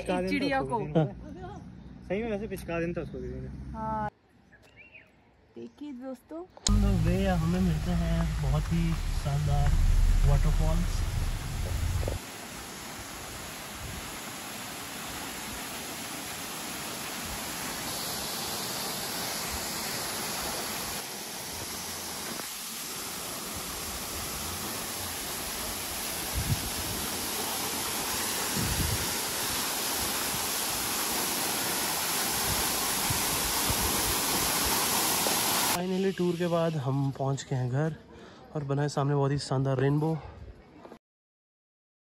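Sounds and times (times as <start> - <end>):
low thumps: 6.7 - 12.2
waterfall rushing: 6.7 - 35.9.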